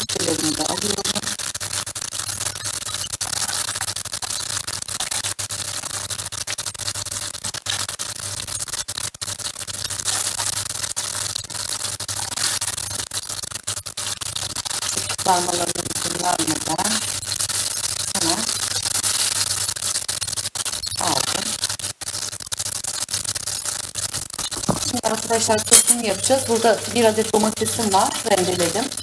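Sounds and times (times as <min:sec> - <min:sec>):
meatballs sizzling in oil: 0:00.1 - 0:29.0
metal spoon clicking on pan: 0:25.6 - 0:26.6.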